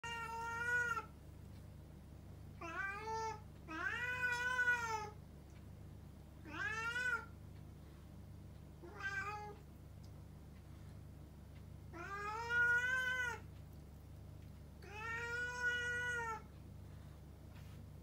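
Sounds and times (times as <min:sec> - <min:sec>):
cats yowling: 0:02.6 - 0:05.2, 0:06.5 - 0:07.3, 0:11.9 - 0:13.4, 0:14.8 - 0:16.5.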